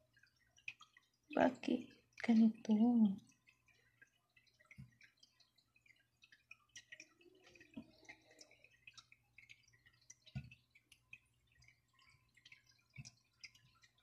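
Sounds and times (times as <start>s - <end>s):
light ticks on ceramic plate: 0.1s - 14.0s.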